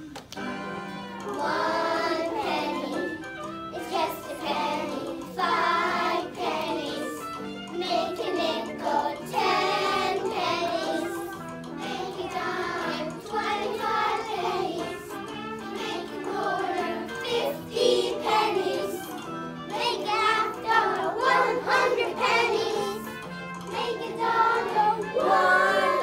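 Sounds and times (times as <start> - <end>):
instrumental accompaniment: 0.2 - 26.0
children singing together: 1.2 - 26.0.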